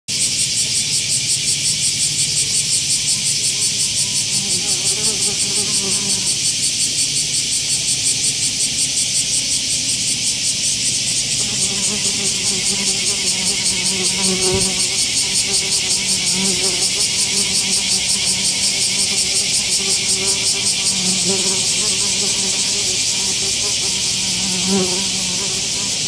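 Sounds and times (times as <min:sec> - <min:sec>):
pulsing insect song: 0:00.1 - 0:26.0
wasp wings buzzing: 0:03.7 - 0:06.4, 0:11.1 - 0:26.0.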